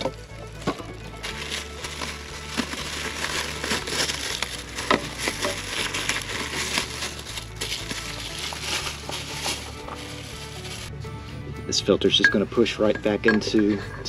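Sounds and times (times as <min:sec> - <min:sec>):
packaging crinkling: 0:00.0 - 0:10.9.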